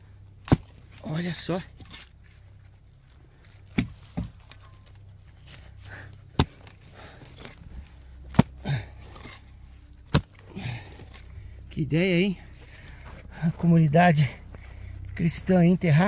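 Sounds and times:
digging tool striking packed earth: 0:00.4 - 0:02.2, 0:03.7 - 0:11.3.

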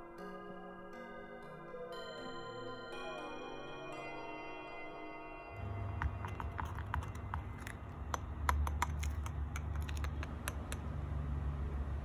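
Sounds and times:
low steady hum: 0:05.5 - 0:12.0
utensil tapping glass jar: 0:05.6 - 0:10.8.

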